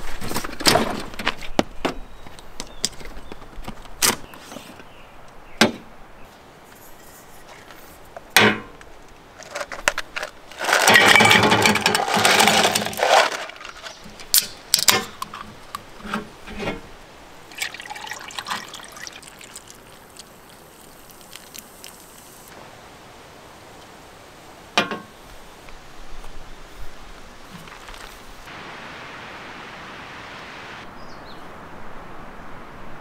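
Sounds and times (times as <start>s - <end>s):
ice rattling into metal cup: 9.4s - 15.4s, 17.5s - 19.9s
soda pouring and fizzing: 17.4s - 22.5s.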